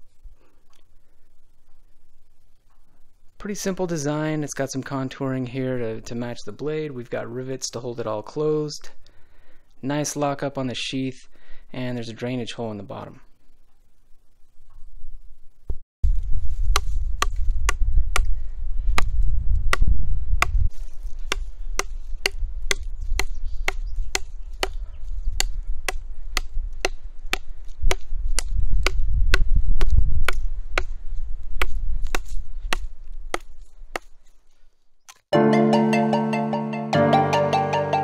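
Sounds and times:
knife chopping wood: 0:16.7 - 0:18.3, 0:21.2 - 0:24.8, 0:25.4 - 0:30.9, 0:31.6 - 0:34.2.

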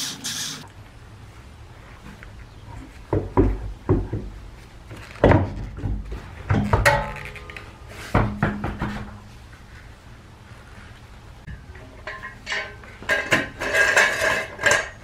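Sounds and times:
wheel knocks and thuds: 0:05.1 - 0:07.4, 0:08.0 - 0:09.3.

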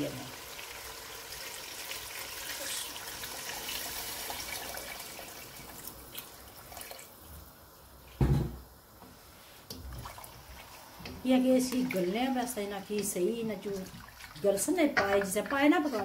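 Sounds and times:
water pouring into metal pot: 0:00.0 - 0:07.1
loud thump: 0:08.2 - 0:08.6.

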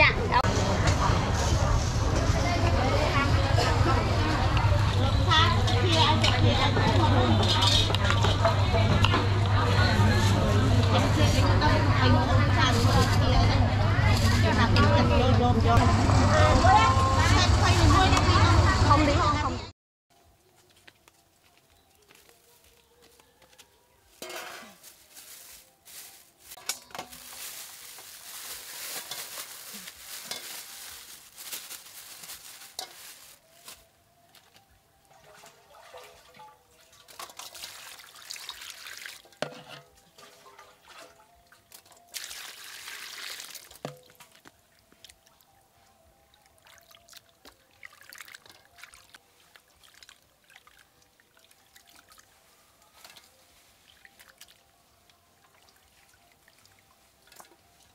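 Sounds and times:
water splashing in metal bowl: 0:35.2 - 0:39.5, 0:40.1 - 0:44.5, 0:46.6 - 0:52.2.

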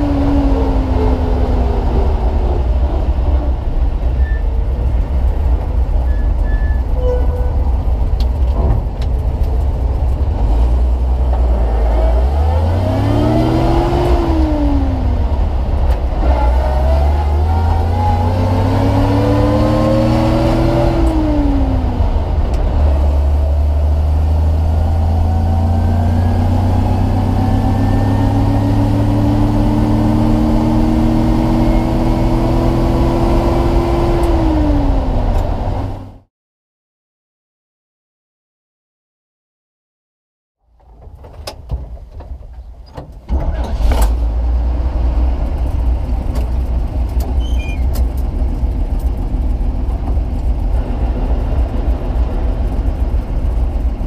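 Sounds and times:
truck engine under load: 0:40.7 - 0:54.0.

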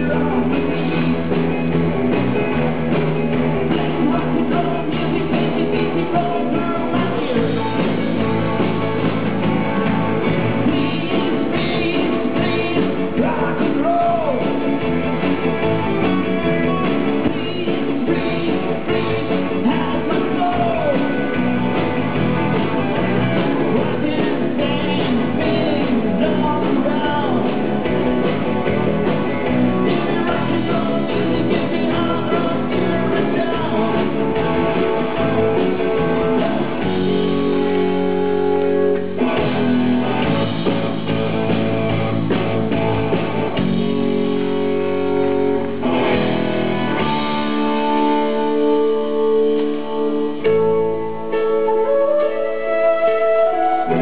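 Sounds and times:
man singing: 0:00.0 - 0:01.2, 0:03.7 - 0:09.1, 0:10.4 - 0:14.8, 0:16.4 - 0:21.8, 0:22.9 - 0:27.9, 0:29.5 - 0:37.5
electric guitars playing: 0:00.0 - 0:54.0.

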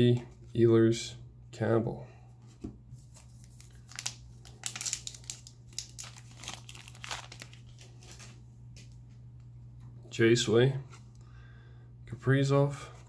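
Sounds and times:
foil wrapper crinkling: 0:03.0 - 0:08.4.

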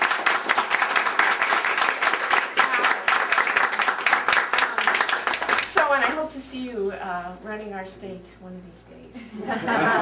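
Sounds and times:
crowd applauding: 0:00.0 - 0:06.2.

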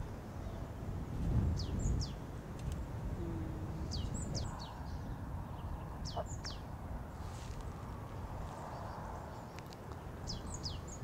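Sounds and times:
small songbird chirping: 0:01.5 - 0:02.3, 0:03.3 - 0:06.7, 0:07.4 - 0:11.0.

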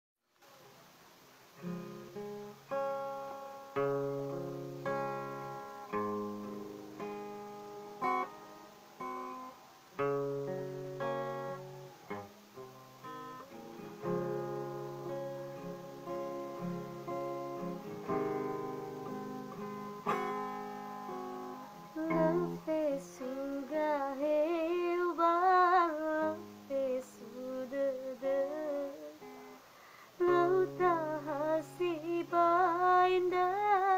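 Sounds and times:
acoustic guitar chords: 0:01.6 - 0:33.9
woman singing with vibrato: 0:21.8 - 0:29.5, 0:30.1 - 0:33.9.

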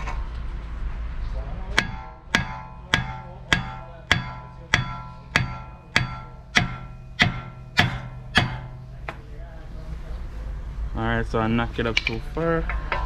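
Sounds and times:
hammer striking steel: 0:01.7 - 0:09.3.

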